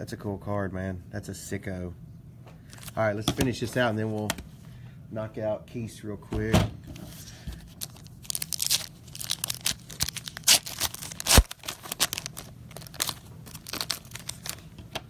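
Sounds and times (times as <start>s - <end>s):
plastic wrapper tearing and crinkling: 7.7s - 14.8s.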